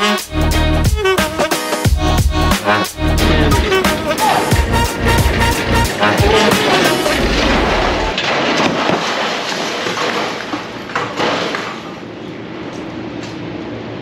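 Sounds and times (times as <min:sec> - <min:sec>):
heavy-bass music: 0:01.9 - 0:08.1
metal knocks and clunks on ramp: 0:03.1 - 0:11.8.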